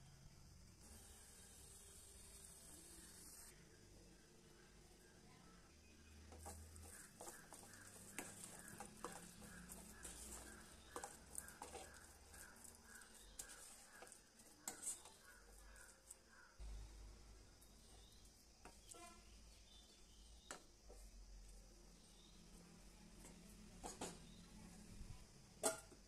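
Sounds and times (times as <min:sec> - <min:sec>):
spoon scraping a steel pan: 0:06.3 - 0:16.2.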